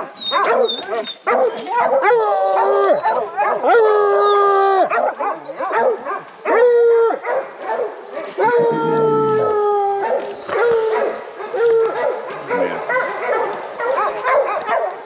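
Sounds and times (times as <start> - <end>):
hounds barking: 0.0 - 15.0
hounds baying: 0.0 - 15.0.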